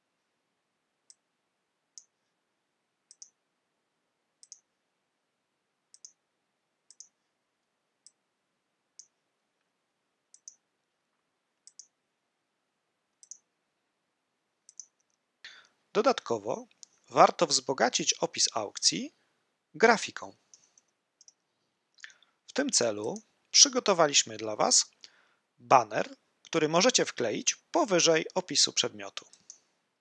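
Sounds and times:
computer mouse clicking: 0:03.1 - 0:03.4, 0:04.4 - 0:04.6, 0:05.9 - 0:06.2, 0:06.9 - 0:07.2, 0:10.3 - 0:10.6, 0:11.6 - 0:11.9, 0:13.2 - 0:13.4, 0:14.7 - 0:15.2, 0:20.5 - 0:21.4.

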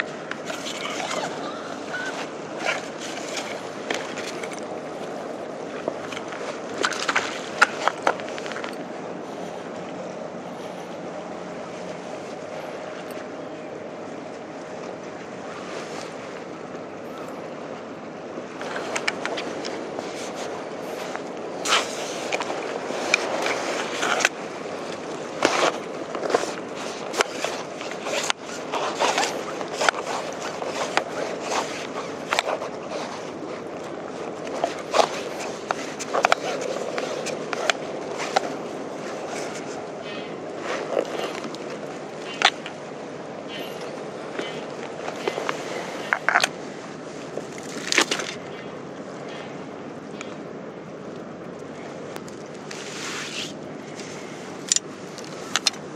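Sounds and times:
fishing tackle clicking and scraping: 0:00.0 - 0:10.0, 0:18.6 - 0:48.6, 0:51.2 - 0:55.9
sea water rushing: 0:00.0 - 0:55.9
wind: 0:00.0 - 0:55.9.

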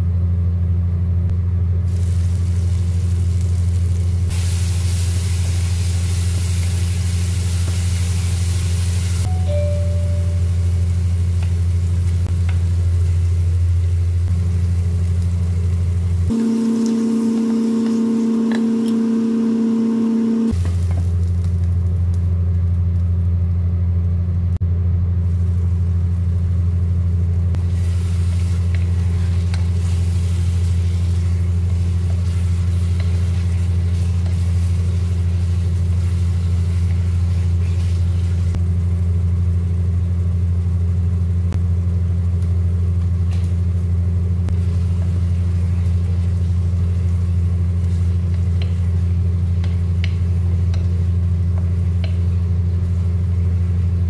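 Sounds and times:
steady low hum: 0:00.0 - 0:54.0
food sizzling in a pot: 0:01.9 - 0:21.4, 0:27.6 - 0:40.9, 0:44.5 - 0:54.0.

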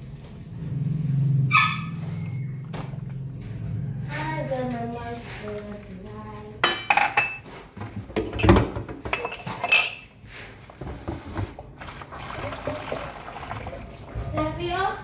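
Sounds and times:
kitchenware clattering: 0:04.2 - 0:11.7.

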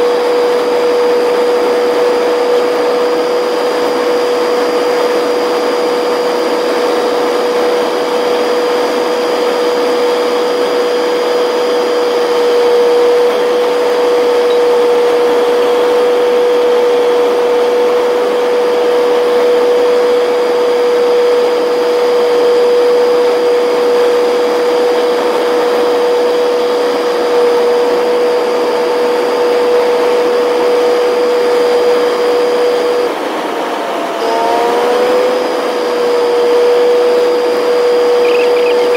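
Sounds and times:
truck cab whine: 0:10.7 - 0:19.5, 0:35.9 - 0:38.9.

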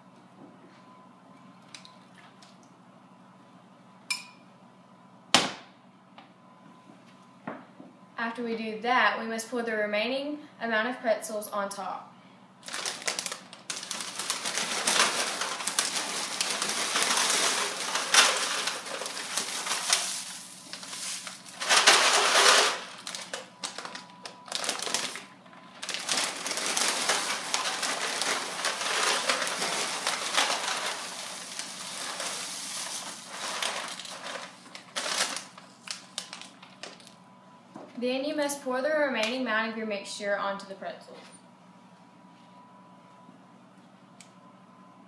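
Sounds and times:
pretzels rattling into foil pan: 0:12.6 - 0:25.2, 0:25.8 - 0:37.1
plastic bags crinkling: 0:12.6 - 0:37.2.

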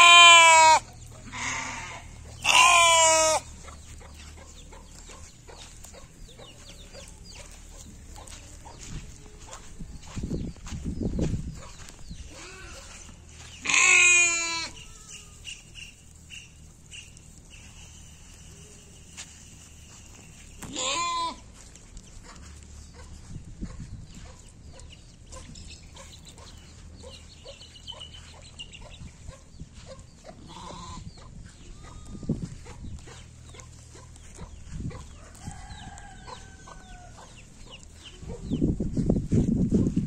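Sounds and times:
lambs bleating: 0:00.0 - 0:03.5, 0:12.3 - 0:13.0, 0:13.6 - 0:15.5, 0:20.6 - 0:21.5, 0:30.4 - 0:32.4.

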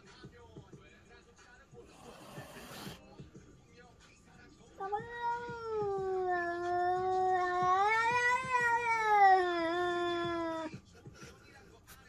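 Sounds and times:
cat yowling: 0:04.8 - 0:10.7.

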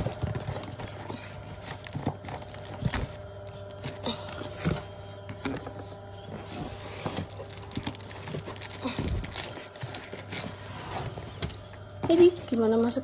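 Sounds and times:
cardboard box scraping and rustling: 0:06.3 - 0:11.4.

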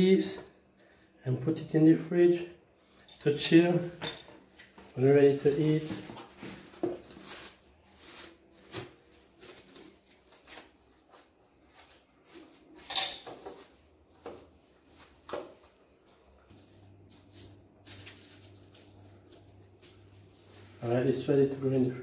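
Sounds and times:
cling wrap crinkling: 0:04.6 - 0:12.8, 0:16.5 - 0:21.7.

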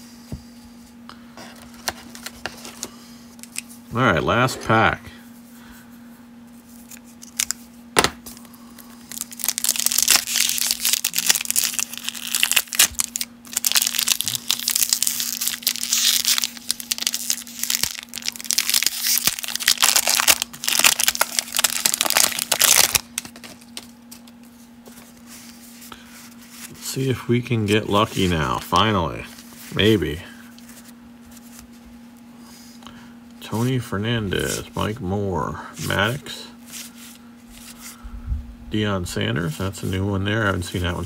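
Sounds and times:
cellophane wrapper crinkling and tearing: 0:06.8 - 0:07.6, 0:08.3 - 0:24.5.

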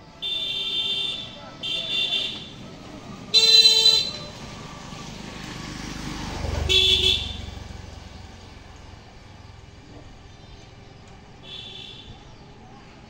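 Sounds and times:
vehicle horn tooting: 0:00.2 - 0:02.6, 0:03.3 - 0:04.4, 0:06.6 - 0:07.6, 0:11.4 - 0:12.1
passing vehicle: 0:01.3 - 0:13.0.

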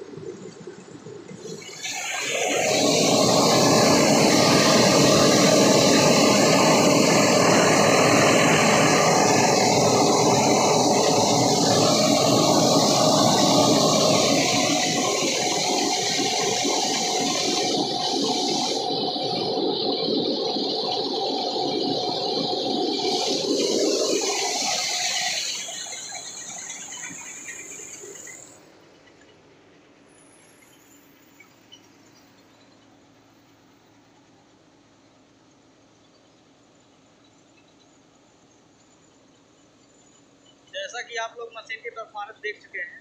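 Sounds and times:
rice mill rushing: 0:01.4 - 0:28.6.

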